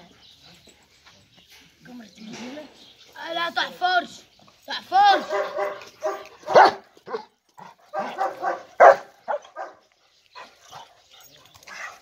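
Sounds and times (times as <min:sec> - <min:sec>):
dogs barking: 0:05.2 - 0:10.9.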